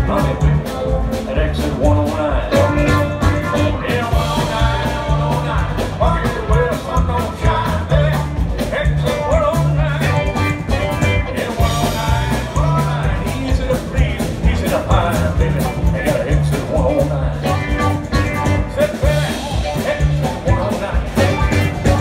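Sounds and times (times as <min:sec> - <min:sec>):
drum kit: 0:00.0 - 0:22.0
electric guitar: 0:00.0 - 0:22.0
upright bass line: 0:00.0 - 0:22.0
pedal steel guitar: 0:14.8 - 0:22.0.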